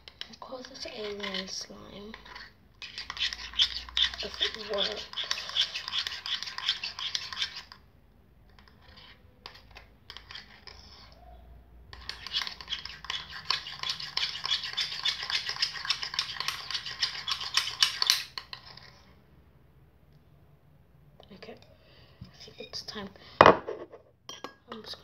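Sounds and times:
utensil stirring slime in bowl: 0:00.0 - 0:07.9, 0:08.5 - 0:11.2, 0:11.9 - 0:19.1.

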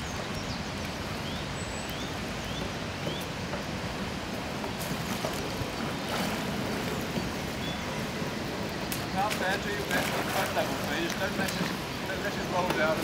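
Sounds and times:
bird chirping: 0:00.0 - 0:03.4, 0:05.4 - 0:09.6.

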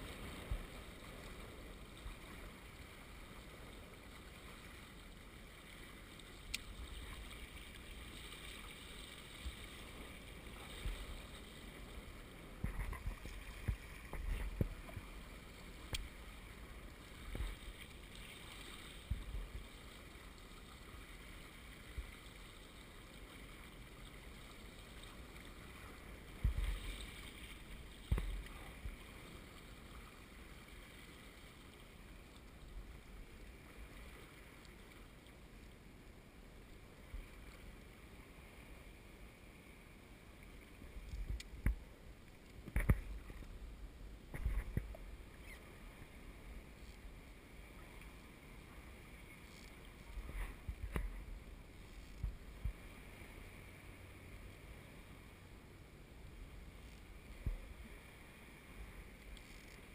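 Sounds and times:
water washing along hulls: 0:00.0 - 0:32.2.

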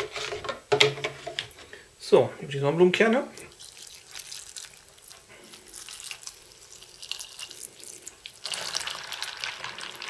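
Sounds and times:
water pouring onto seeds: 0:03.4 - 0:10.0.

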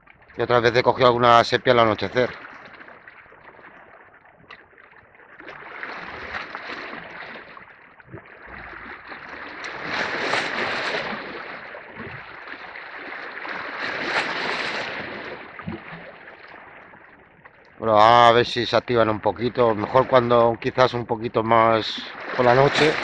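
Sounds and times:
waves washing against rocks: 0:08.8 - 0:15.9, 0:21.5 - 0:23.0.

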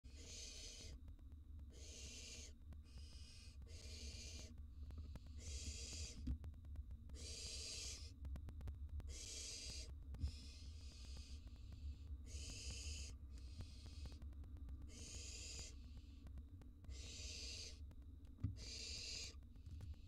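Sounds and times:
low steady hum: 0:00.0 - 0:20.0
owl chick hissing call: 0:00.1 - 0:01.0, 0:01.7 - 0:04.5, 0:05.4 - 0:06.2, 0:07.2 - 0:08.1, 0:09.1 - 0:11.4, 0:12.2 - 0:14.2, 0:14.9 - 0:15.8, 0:16.9 - 0:17.8, 0:18.6 - 0:19.4.

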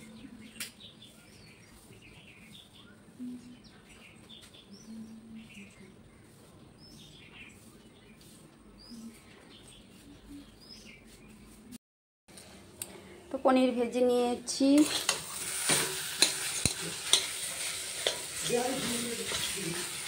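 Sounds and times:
small birds chirping: 0:00.0 - 0:11.8, 0:16.2 - 0:20.0.

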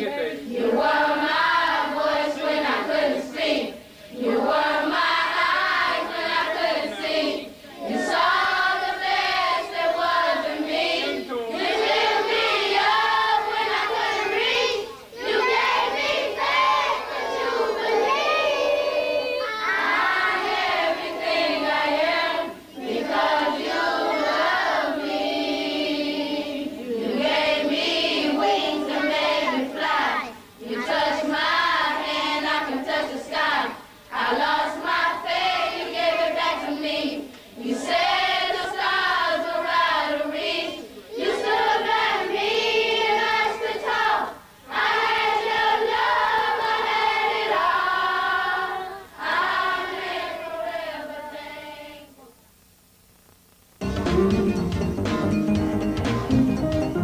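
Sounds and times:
children singing: 0:00.0 - 0:52.3.

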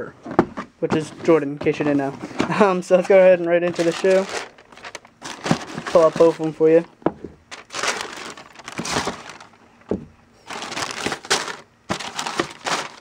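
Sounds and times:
tissue paper rustling: 0:01.8 - 0:06.9, 0:07.5 - 0:09.6, 0:10.4 - 0:13.0.

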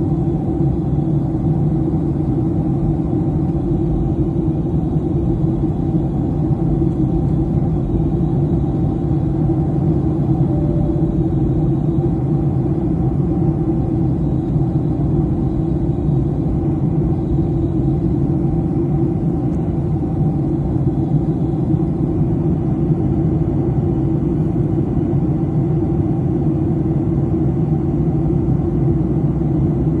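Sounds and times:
airflow: 0:00.0 - 0:23.1
jet engine noise: 0:00.0 - 0:30.0.

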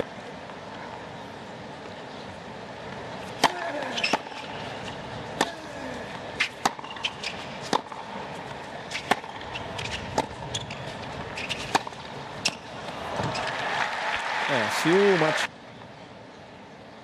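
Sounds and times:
crowd hum: 0:00.0 - 0:15.5
tennis ball bouncing: 0:03.2 - 0:13.6
racquet striking tennis ball: 0:03.4 - 0:04.6, 0:05.3 - 0:05.8, 0:06.4 - 0:13.5.

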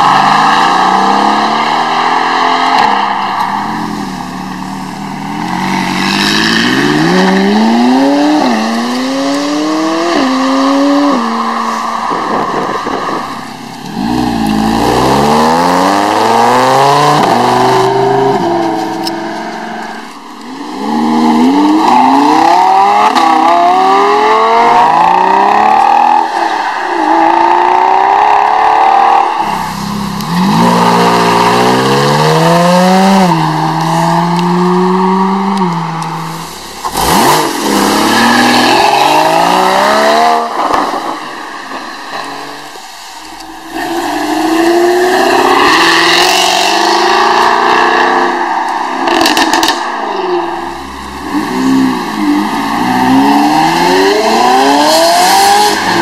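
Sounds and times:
supercars accelerating hard: 0:43.6 - 0:56.0.

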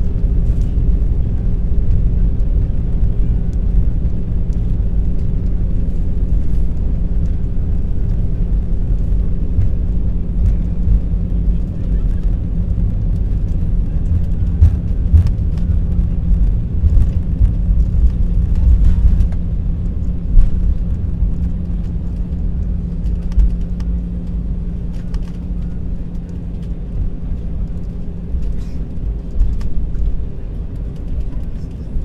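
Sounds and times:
aircraft cabin rumble: 0:00.0 - 0:32.0.

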